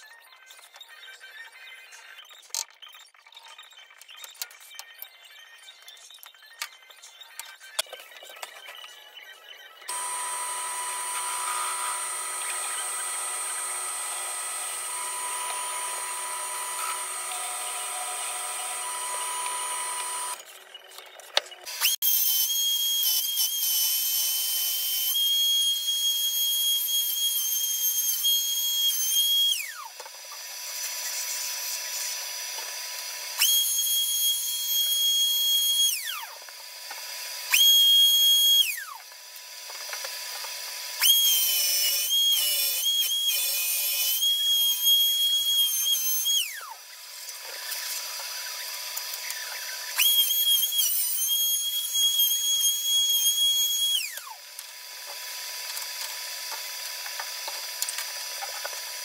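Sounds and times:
router whining: 7.4s - 59.0s
drill press motor running: 9.9s - 20.4s.

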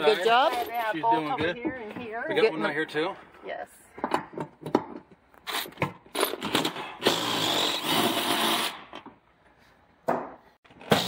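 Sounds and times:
cordless impact driver running: 6.5s - 8.8s.

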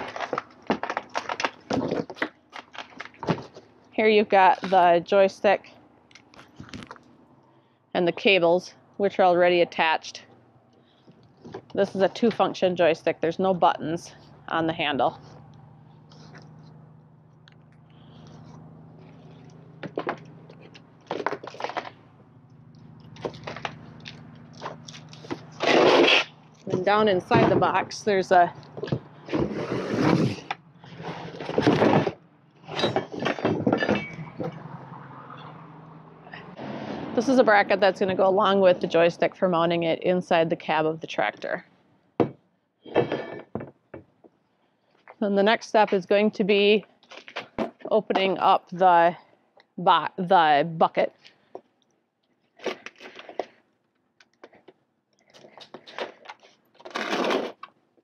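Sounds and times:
crunching and scraping handling: 0.0s - 5.0s, 6.1s - 7.2s, 14.0s - 34.6s, 51.2s - 57.8s
cardboard box scraping and rustling: 25.2s - 26.3s, 28.8s - 32.2s.

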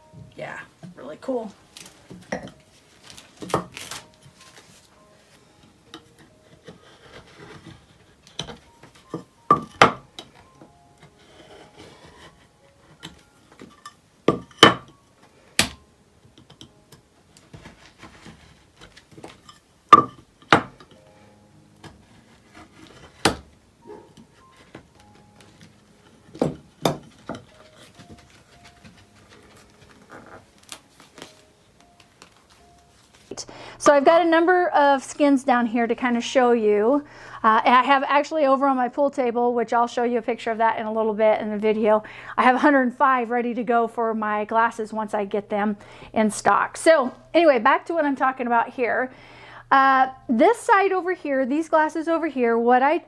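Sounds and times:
faint background music: 0.0s - 53.0s
rubbing and handling noise: 1.0s - 14.6s, 16.3s - 33.4s.

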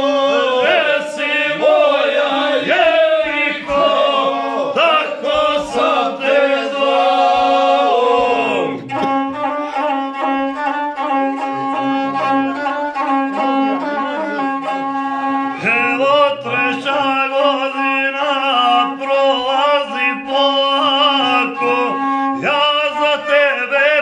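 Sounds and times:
men singing together: 0.0s - 8.8s
bowed gusle: 21.5s - 22.4s.

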